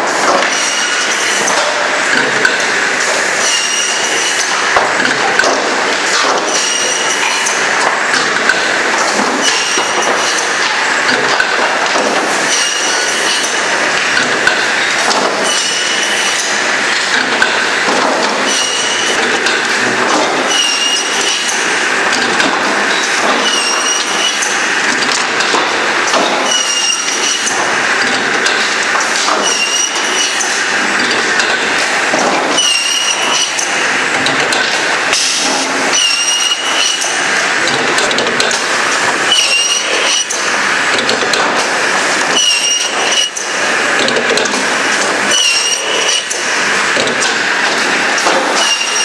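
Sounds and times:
machine and wood clatter: 0:00.0 - 0:49.0
circular saw blade squealing: 0:26.5 - 0:27.5, 0:32.6 - 0:33.6, 0:42.4 - 0:43.4, 0:45.3 - 0:46.3, 0:48.6 - 0:49.0.

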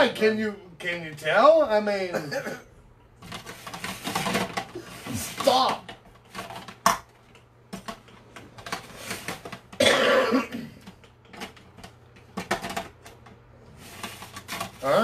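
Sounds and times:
person coughing: 0:02.1 - 0:02.7, 0:09.8 - 0:10.8.

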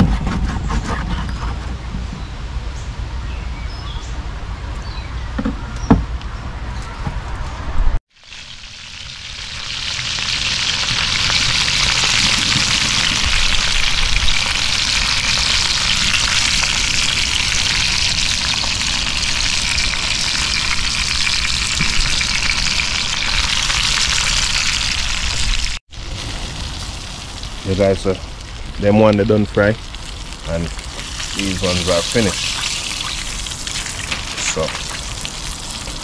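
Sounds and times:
fish sizzling in hot oil: 0:08.1 - 0:29.0, 0:29.6 - 0:36.0.

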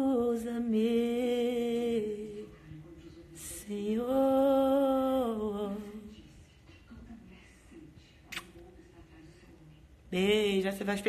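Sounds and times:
woman singing unaccompanied: 0:00.0 - 0:02.6, 0:03.4 - 0:06.3, 0:10.1 - 0:11.0.

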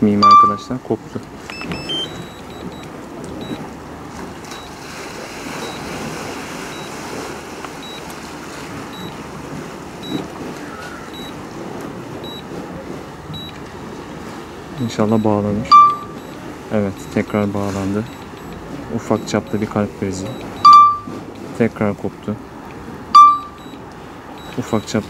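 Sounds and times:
short high beep: 0:00.2 - 0:00.7, 0:01.5 - 0:02.8, 0:11.1 - 0:11.3, 0:15.1 - 0:16.4, 0:20.3 - 0:21.2, 0:23.2 - 0:23.8
wind and surf rushing: 0:01.3 - 0:25.0.

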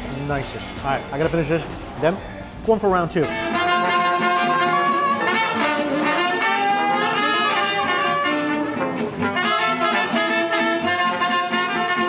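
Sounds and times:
jazz band playing: 0:03.2 - 0:12.0.

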